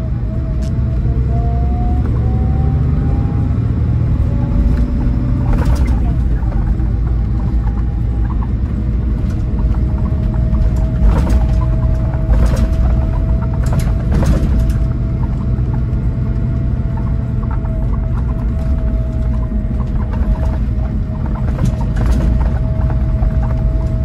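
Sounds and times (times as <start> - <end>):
coach engine and road rumble: 0.0 - 24.0
brief rattle: 4.8 - 8.4, 9.2 - 15.7.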